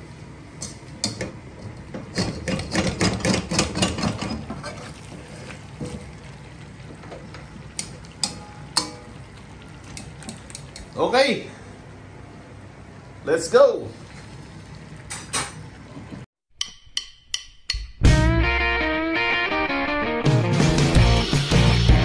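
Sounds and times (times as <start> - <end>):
metal spatula clanking in wok: 8.2 - 9.2.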